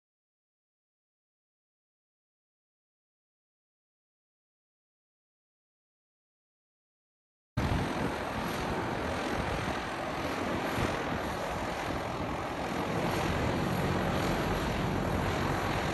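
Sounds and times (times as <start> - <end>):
propeller plane engines running: 7.6 - 15.9.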